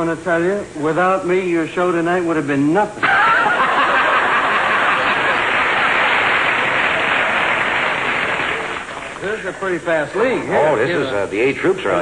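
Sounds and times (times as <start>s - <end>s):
studio audience laughing: 3.0s - 9.8s
audience applauding: 3.0s - 10.0s.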